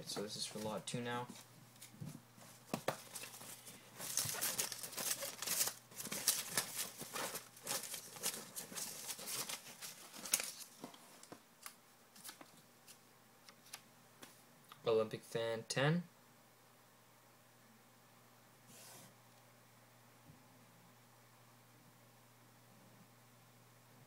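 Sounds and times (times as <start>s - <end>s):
paper slips rustling: 2.9s - 10.8s.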